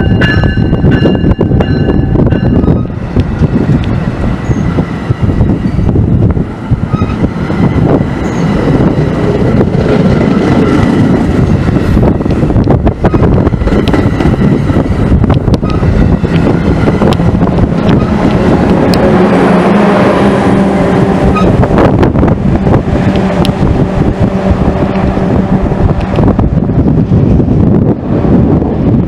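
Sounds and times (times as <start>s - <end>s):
train wheel clicks: 0.0s - 4.6s, 12.1s - 19.1s, 25.9s - 26.3s
train wheels rumbling on rail: 0.0s - 29.0s.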